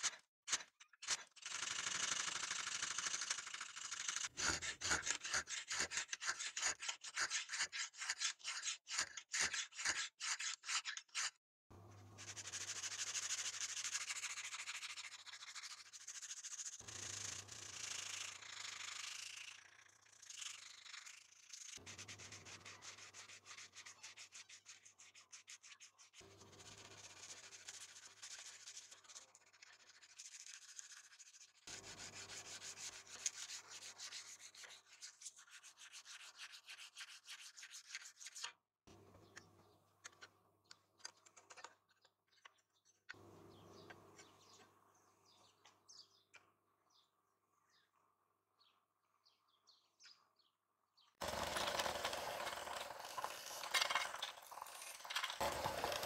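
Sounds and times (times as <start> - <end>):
file rasping on steel blade: 4.3 - 11.4, 21.7 - 38.4, 51.2 - 56.0
abrasive paper rubbing on steel: 12.2 - 38.5, 51.2 - 56.0.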